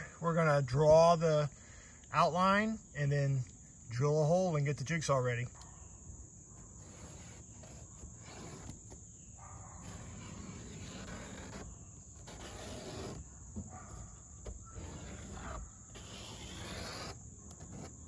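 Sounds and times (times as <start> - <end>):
marker scraping on metal: 6.5 - 18.0.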